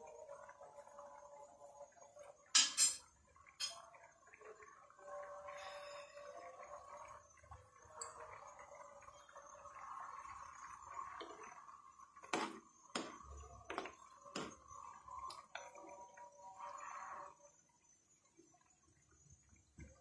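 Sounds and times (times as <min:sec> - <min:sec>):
water bubbling in pan: 0:00.0 - 0:20.0.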